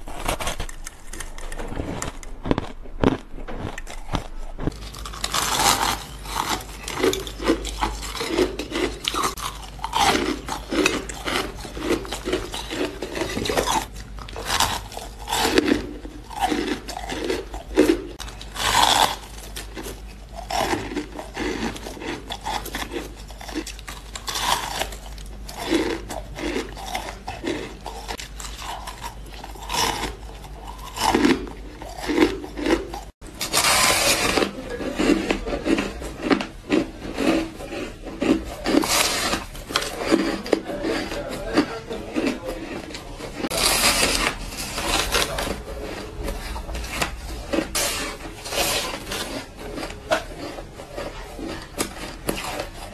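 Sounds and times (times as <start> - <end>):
ice block crunch: 0.0 - 19.9, 30.8 - 52.9
person crunching shaved ice: 0.0 - 52.9.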